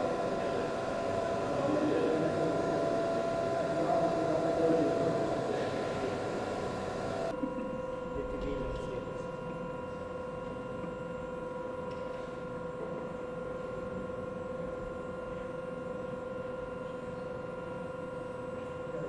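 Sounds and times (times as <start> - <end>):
steady machine hum: 0.0 - 11.8.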